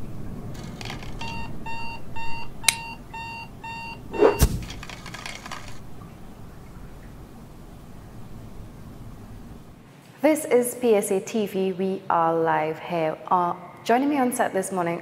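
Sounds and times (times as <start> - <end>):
alarm clock beeping: 1.2 - 4.6
sharp click: 2.6 - 2.9, 4.2 - 5.8
loud thump: 4.2 - 5.0.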